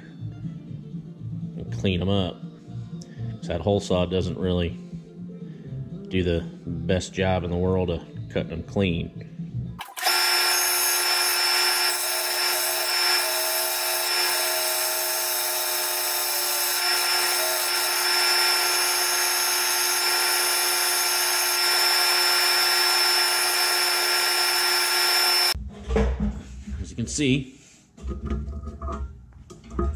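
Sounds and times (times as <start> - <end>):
belt sander grinding metal: 9.9 - 25.6.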